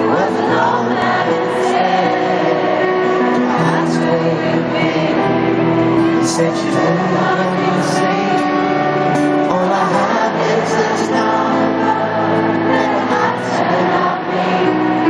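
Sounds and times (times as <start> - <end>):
man singing into microphone: 0.0 - 11.7
guitar: 0.0 - 15.0
keyboard: 0.0 - 15.0.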